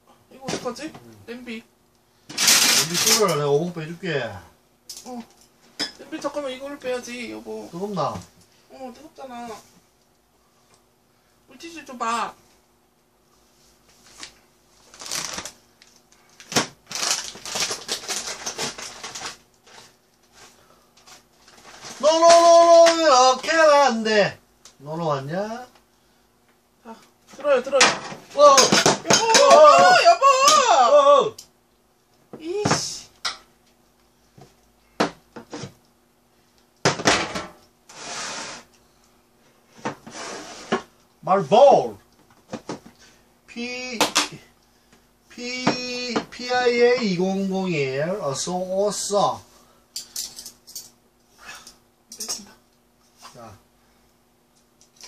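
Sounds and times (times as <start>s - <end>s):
plastic packet crinkling: 14.8s - 19.9s.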